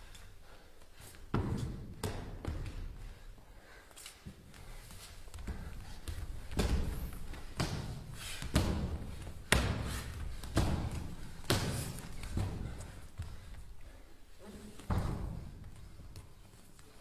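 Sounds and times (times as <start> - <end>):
heavy thumps in hall: 5.3 - 13.7, 14.8 - 16.3.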